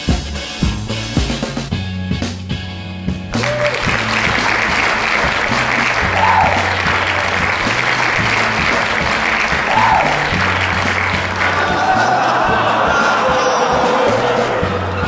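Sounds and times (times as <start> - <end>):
background music with bass line: 0.0 - 15.0
crowd applause: 3.3 - 15.0.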